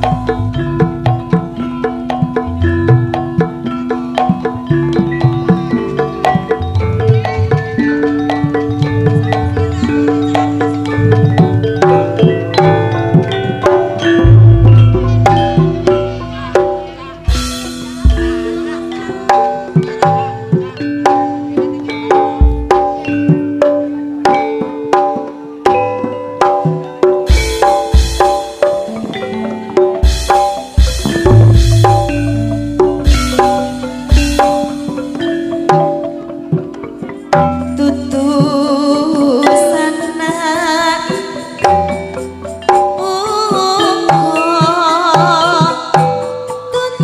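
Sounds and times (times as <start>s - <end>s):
drum beats: 0.0s - 47.0s
gamelan metallophones and gongs: 0.0s - 47.0s
person singing wavering melody: 0.0s - 47.0s.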